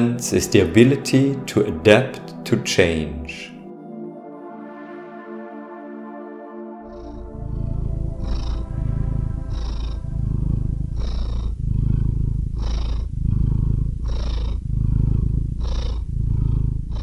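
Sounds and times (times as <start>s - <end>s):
cat purring: 6.8s - 17.0s.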